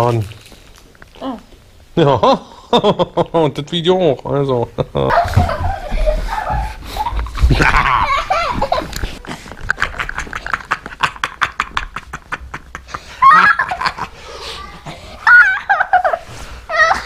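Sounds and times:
man and child laughing: 5.0s - 17.0s
high squealing laughs: 13.0s - 14.1s, 14.7s - 17.0s.

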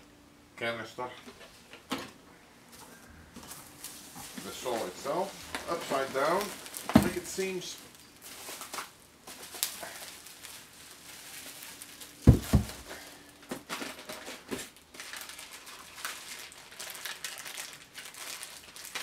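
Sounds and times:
bubble wrap and cardboard crinkling: 3.4s - 19.0s
heavy thuds on wooden crate: 12.2s - 12.9s.

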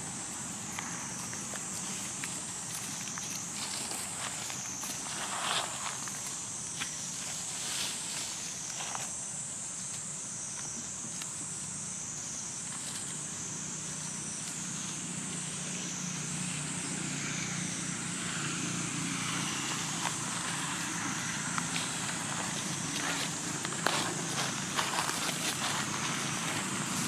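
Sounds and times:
distant traffic hum: 0.0s - 9.1s, 11.4s - 27.0s
shrill insect chorus: 0.0s - 27.0s
rustling in leaf litter: 1.2s - 9.2s, 19.6s - 27.0s.

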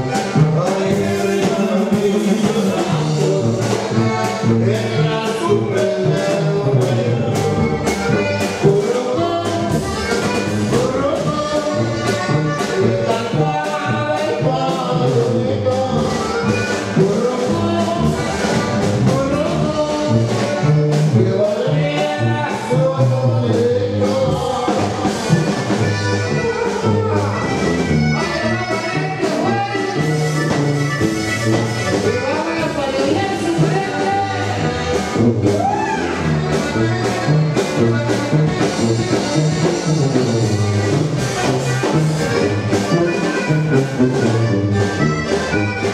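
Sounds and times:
accordion: 0.0s - 45.9s
drum kit beat: 0.0s - 45.9s
sousaphone bass line: 0.0s - 45.9s
upbeat live band music: 0.0s - 45.9s.

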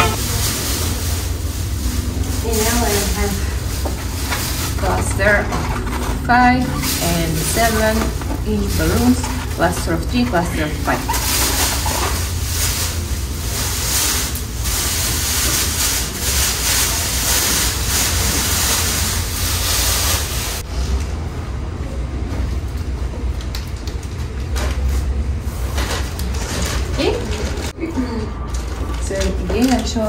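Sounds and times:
steady low rumble: 0.0s - 16.0s
plastic bag rustling and crinkling: 0.0s - 20.7s, 24.0s - 30.0s.

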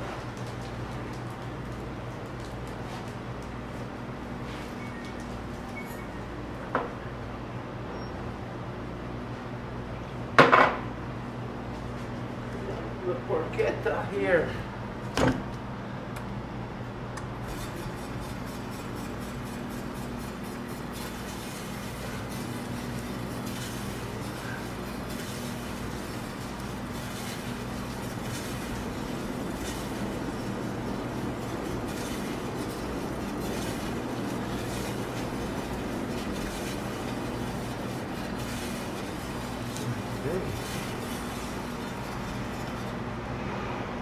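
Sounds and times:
meat slicer motor hum: 16.7s - 44.0s.

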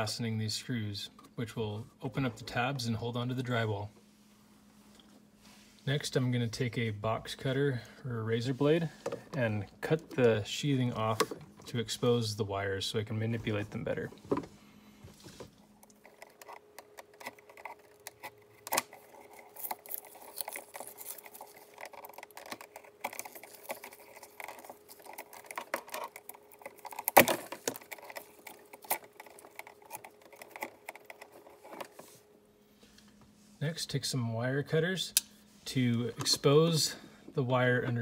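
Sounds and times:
cable clicks and rustles: 13.3s - 32.3s.

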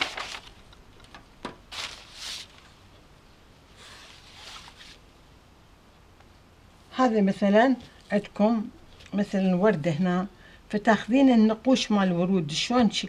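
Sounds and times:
paper and fabric rustling: 0.0s - 2.8s, 3.8s - 5.0s.

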